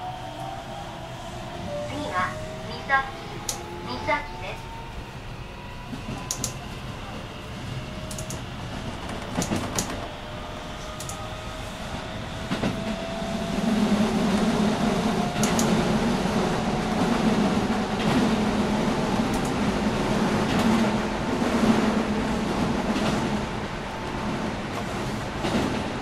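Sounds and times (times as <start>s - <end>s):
train wheels rumbling on track: 0.0s - 26.0s
sharp clicks: 6.3s - 6.6s, 8.1s - 8.4s, 11.0s - 11.2s, 15.4s - 15.8s.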